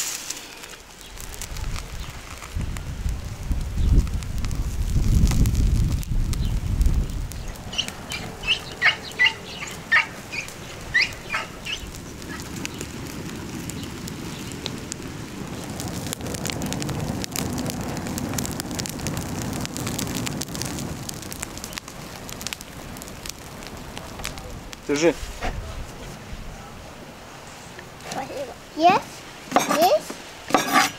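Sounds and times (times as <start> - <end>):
burning straw crackling: 0.0 - 30.9
bird chirping: 7.4 - 12.8.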